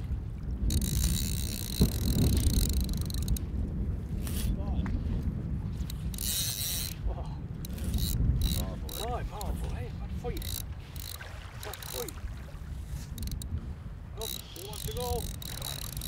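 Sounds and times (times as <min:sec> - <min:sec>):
wind rumble on microphone: 0:00.0 - 0:16.0
fishing reel drag ratcheting: 0:00.6 - 0:03.5, 0:04.2 - 0:04.5, 0:05.8 - 0:12.1, 0:12.9 - 0:13.5, 0:14.2 - 0:16.0.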